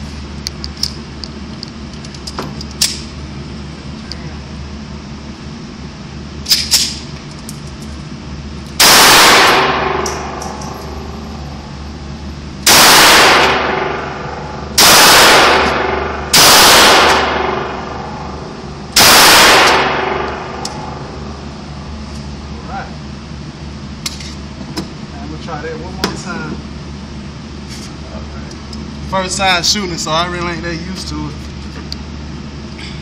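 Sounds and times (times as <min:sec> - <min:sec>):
pistol shots echoing indoors: 0:08.8 - 0:11.0, 0:12.6 - 0:21.3.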